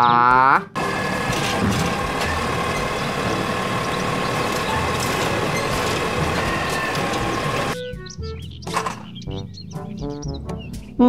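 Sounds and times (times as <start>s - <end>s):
garbage truck running: 0.8s - 7.8s.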